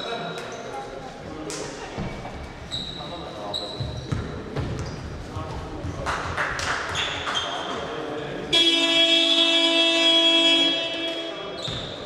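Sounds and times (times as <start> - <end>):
sneakers squeaking on court: 2.0 - 5.2, 6.9 - 7.8, 11.5 - 12.0
basketball buzzer blare: 8.5 - 11.5.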